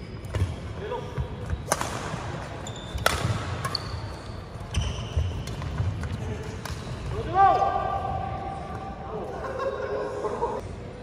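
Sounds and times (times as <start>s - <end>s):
sneakers squeaking: 0.0s - 7.2s
racket striking shuttlecock: 2.9s - 3.8s.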